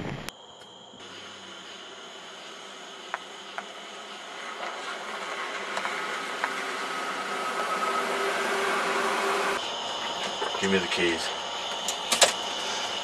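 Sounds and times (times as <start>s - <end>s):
pickup truck engine approaching: 1.4s - 10.5s.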